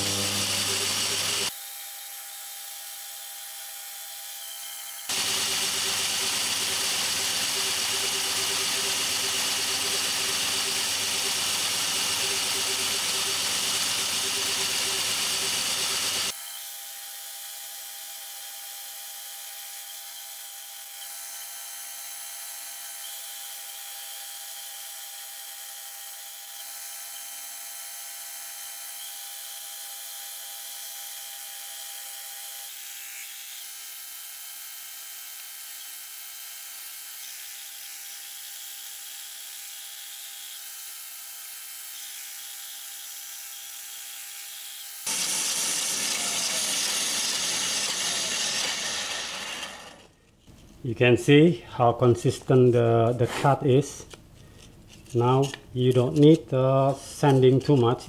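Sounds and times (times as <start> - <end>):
bandsaw cutting wood: 0.0 - 1.6, 5.0 - 16.4, 30.7 - 50.4.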